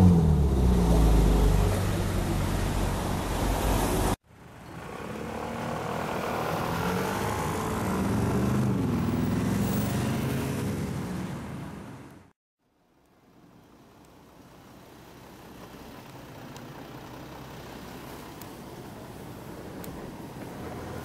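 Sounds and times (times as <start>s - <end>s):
engine revving: 0.0s - 4.1s, 4.7s - 11.2s
vehicles pulling away: 0.0s - 12.2s, 14.2s - 21.0s
city street traffic: 0.0s - 21.0s.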